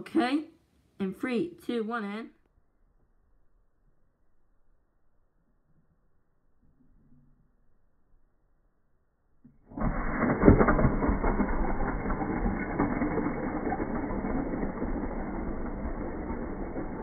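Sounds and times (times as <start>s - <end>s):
toy cars rolling on wooden floor: 9.5s - 17.0s.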